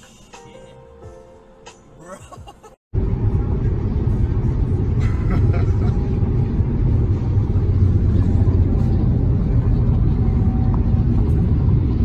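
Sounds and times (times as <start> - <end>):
car road and wind noise: 2.9 - 12.0.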